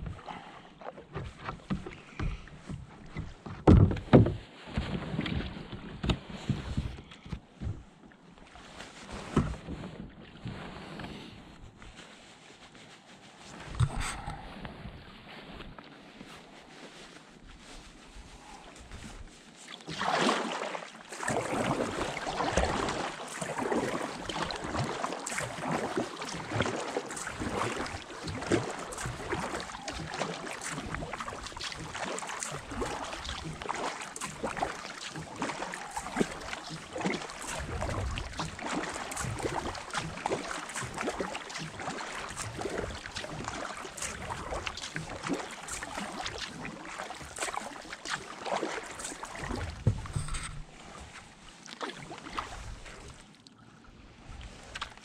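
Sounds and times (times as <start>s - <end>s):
paddle splashing in water: 0.0s - 12.0s, 17.6s - 55.0s
water dripping off paddle: 19.8s - 50.2s
loud splash: 19.9s - 50.0s.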